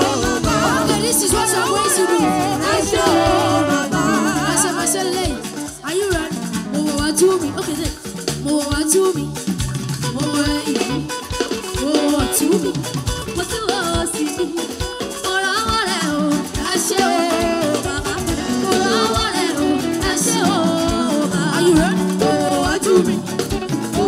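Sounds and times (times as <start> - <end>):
young women singing: 0.0 - 6.3, 13.4 - 24.0
band with keyboard and beat: 0.0 - 24.0.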